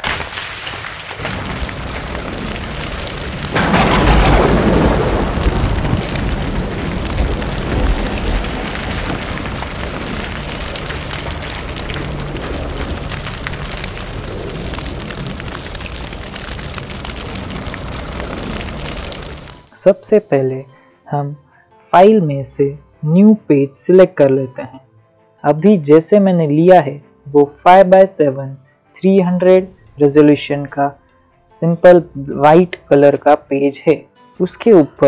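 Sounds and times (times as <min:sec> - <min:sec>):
steady hissing crackle: 0:00.0 - 0:19.8
heavy boom and low rumble: 0:01.2 - 0:19.6.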